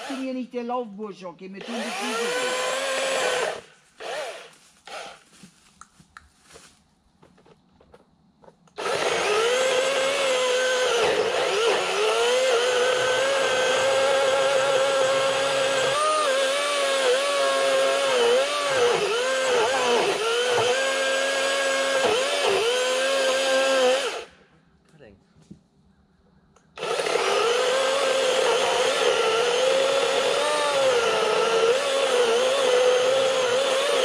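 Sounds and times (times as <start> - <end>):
electric chainsaw cutting wood: 0.0 - 0.4, 1.6 - 5.2, 8.7 - 24.3, 26.8 - 34.0.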